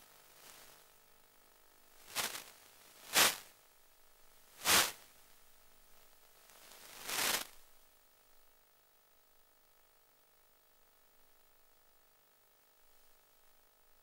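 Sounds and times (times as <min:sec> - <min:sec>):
static hiss swells: 0:00.0 - 0:01.0, 0:01.9 - 0:03.6, 0:04.3 - 0:07.8
faint steady hum: 0:00.0 - 0:14.0.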